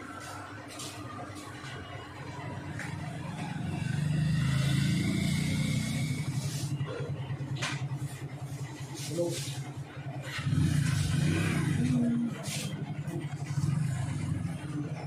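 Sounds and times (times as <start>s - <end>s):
passing vehicle engine rumble: 0.0s - 15.0s.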